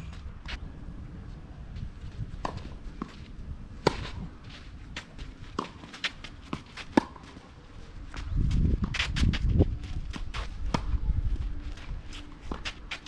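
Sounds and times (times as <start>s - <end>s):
low outdoor rumble: 0.0s - 13.0s
tennis ball bounces and racket strikes: 2.4s - 7.5s.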